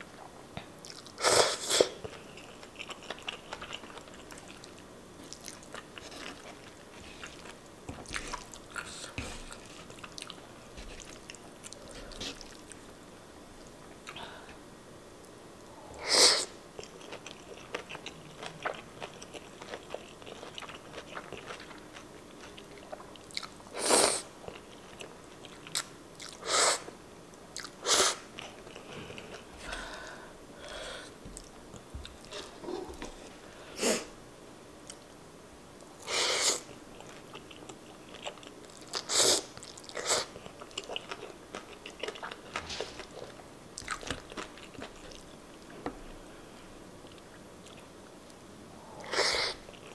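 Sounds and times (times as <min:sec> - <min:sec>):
wet chewing and mouth clicks: 0:16.8 - 0:23.6, 0:37.0 - 0:45.3.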